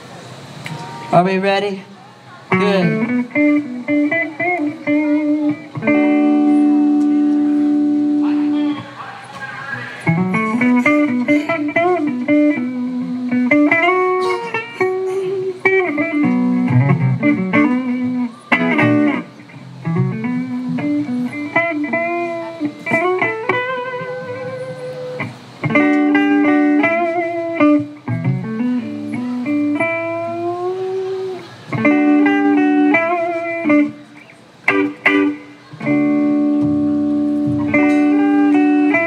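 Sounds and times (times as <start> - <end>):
electric guitar lead lines: 0.0 - 39.0
drums: 10.0 - 39.0.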